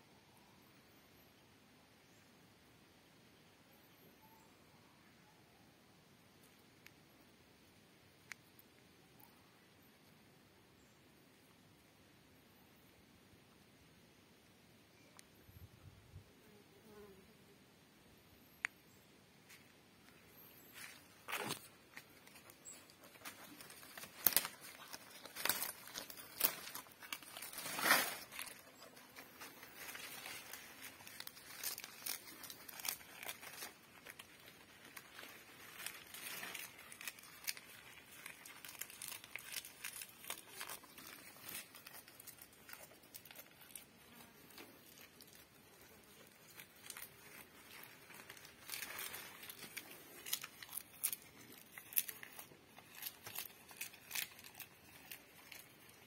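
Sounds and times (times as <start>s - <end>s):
goat chewing leaves: 20.8s - 56.0s.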